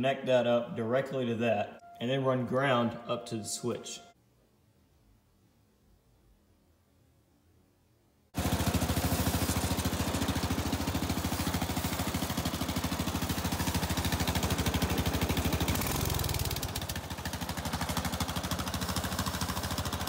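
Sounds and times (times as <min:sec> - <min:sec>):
lawn mower engine idling: 0:08.4 - 0:20.0.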